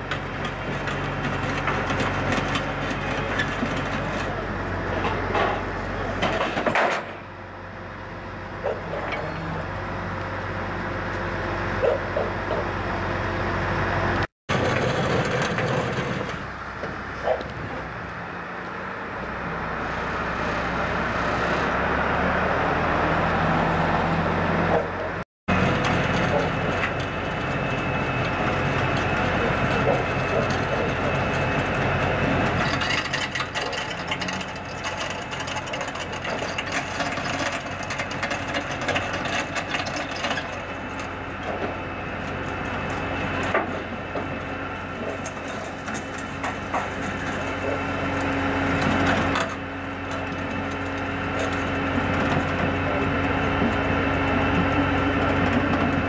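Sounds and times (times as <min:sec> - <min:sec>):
truck engine running: 0:00.0 - 0:56.0
winch pulling: 0:25.8 - 0:44.2.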